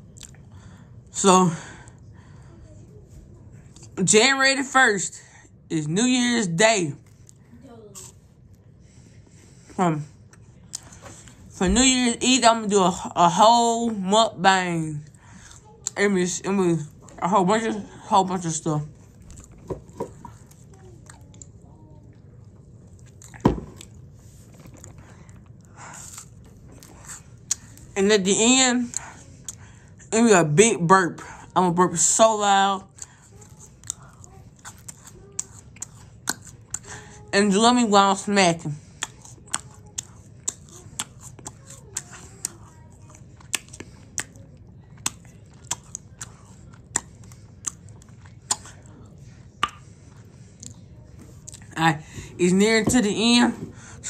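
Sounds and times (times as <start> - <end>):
open-mouthed chewing and lip smacking: 0.0 - 1.0, 19.0 - 28.0, 32.8 - 37.2, 38.7 - 51.8.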